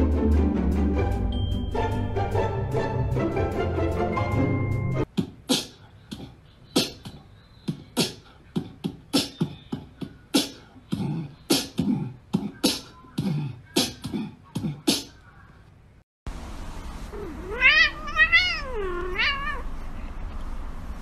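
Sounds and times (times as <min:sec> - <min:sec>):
background music: 0:00.0 - 0:05.1
beatboxing percussive sounds: 0:05.1 - 0:15.2.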